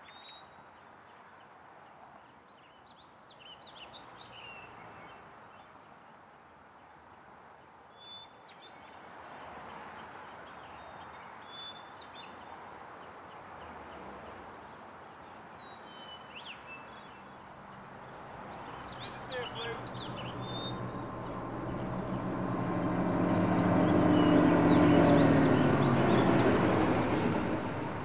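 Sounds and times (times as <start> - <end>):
small birds chirping: 15.2 - 28.0.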